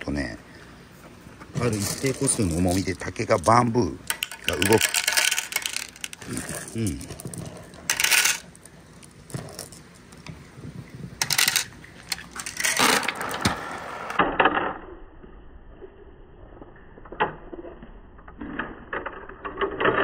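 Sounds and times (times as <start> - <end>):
marbles clattering in bamboo tube: 1.6 - 3.4, 4.0 - 10.2, 11.2 - 13.4, 18.3 - 20.0.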